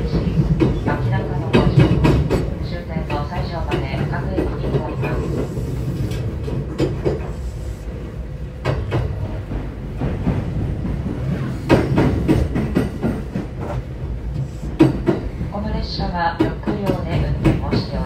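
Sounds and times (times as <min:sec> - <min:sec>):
train wheels rumbling on track: 0:00.0 - 0:18.0
knocks and rattles: 0:08.6 - 0:13.8.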